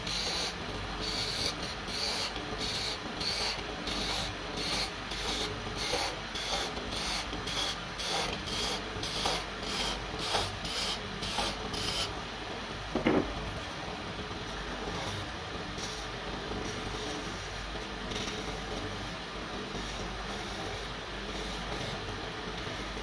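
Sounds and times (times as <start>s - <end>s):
knock: 13.0s - 13.3s.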